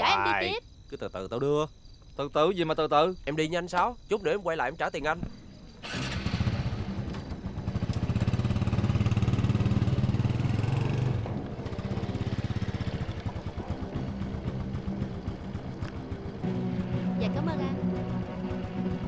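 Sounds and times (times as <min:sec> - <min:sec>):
motorcycle engine pulling away: 0:05.7 - 0:19.0.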